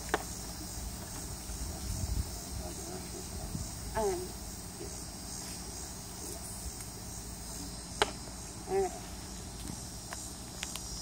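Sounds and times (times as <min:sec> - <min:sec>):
insect chorus: 0:00.0 - 0:11.0.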